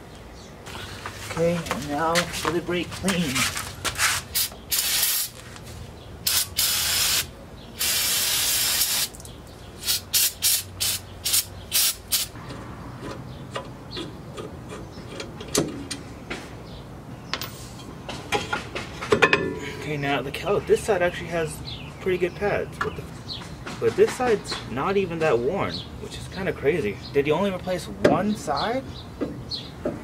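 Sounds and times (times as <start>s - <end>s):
aerosol spray hissing: 4.4s - 5.4s, 6.3s - 9.1s.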